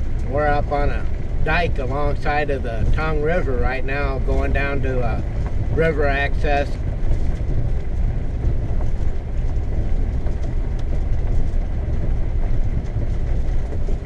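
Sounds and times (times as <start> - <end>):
motorhome engine rumble: 0.0 - 14.0
tyres on gravel: 0.0 - 14.0.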